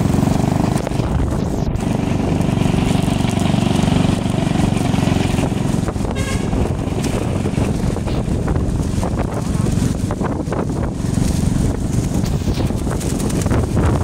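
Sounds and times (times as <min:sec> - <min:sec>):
motorbike engine running: 0:00.0 - 0:14.0
road and wind noise: 0:00.0 - 0:14.0
horn toot: 0:06.0 - 0:06.8.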